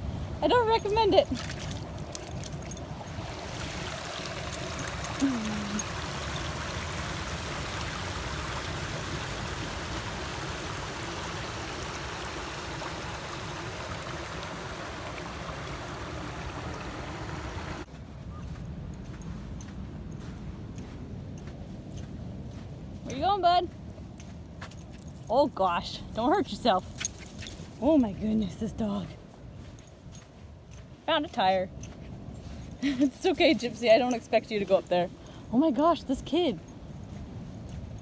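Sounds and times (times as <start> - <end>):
creek trickling over gravel: 1.2 - 17.9.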